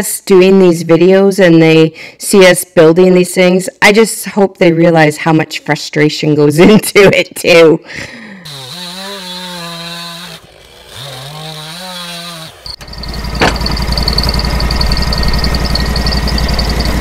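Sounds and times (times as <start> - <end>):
chainsaw revving: 8.4 - 17.0
sawmill engine with pulsing beat: 12.6 - 17.0.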